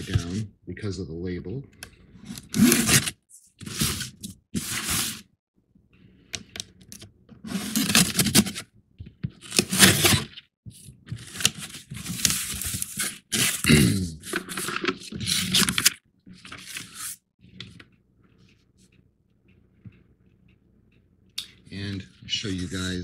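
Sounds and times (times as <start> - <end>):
packing tape tearing: 2.3 - 3.1, 7.5 - 8.6.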